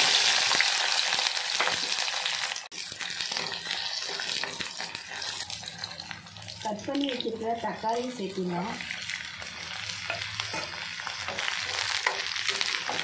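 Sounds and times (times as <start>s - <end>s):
shallots sizzling in hot oil: 0.0s - 13.0s
spatula scraping a pan: 3.2s - 8.2s, 8.8s - 13.0s.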